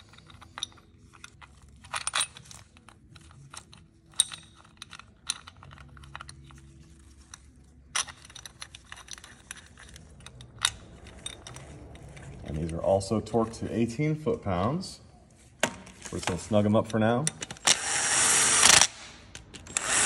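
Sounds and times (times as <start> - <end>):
metal chain clicking and rattling: 0.0 - 13.2.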